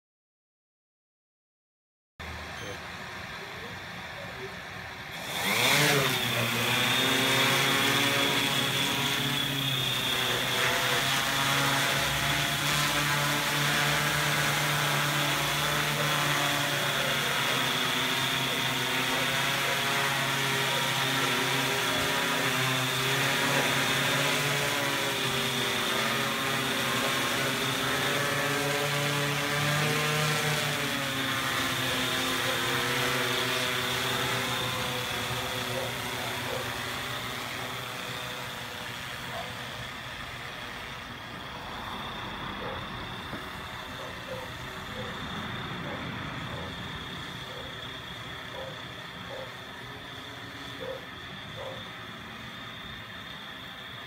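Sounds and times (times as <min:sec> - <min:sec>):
drone motors whining: 0:02.2 - 0:54.0.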